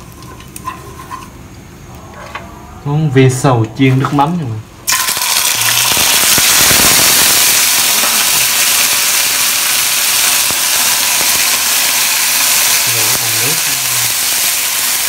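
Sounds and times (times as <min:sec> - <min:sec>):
hot oil sizzling and crackling: 0:00.0 - 0:01.4, 0:04.9 - 0:15.0.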